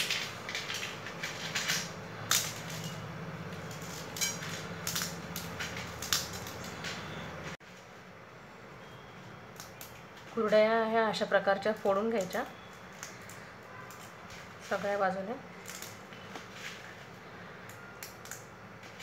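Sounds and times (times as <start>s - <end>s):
brittle food crumbling and snapping: 0.0s - 7.2s, 9.5s - 10.4s, 11.6s - 14.4s, 15.5s - 19.0s.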